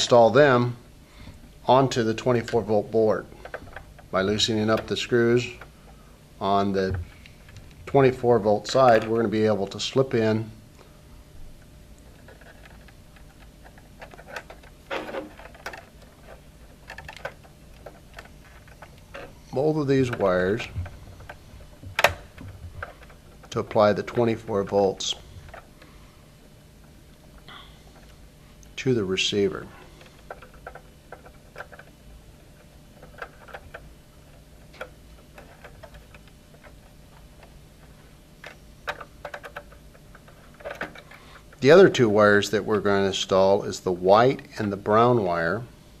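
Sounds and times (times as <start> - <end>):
low steady hum: 0.0 - 46.0
fingers handling wires: 2.3 - 10.2, 11.6 - 25.9, 29.4 - 42.0.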